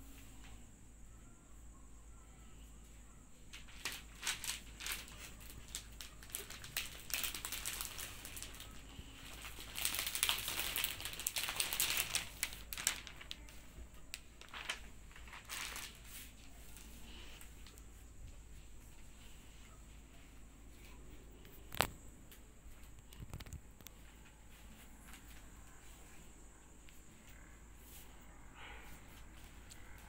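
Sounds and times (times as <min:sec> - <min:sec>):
cellophane wrapping crinkling: 0:03.5 - 0:17.8.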